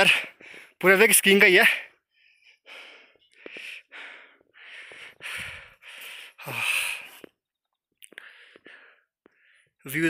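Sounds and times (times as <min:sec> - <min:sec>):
person panting: 0:00.0 - 0:00.8, 0:02.0 - 0:07.4, 0:08.1 - 0:09.8.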